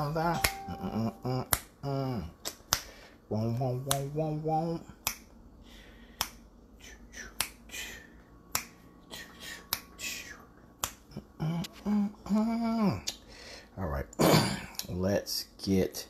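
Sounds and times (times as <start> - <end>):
voice singing drawn-out notes: 0.0 - 2.3.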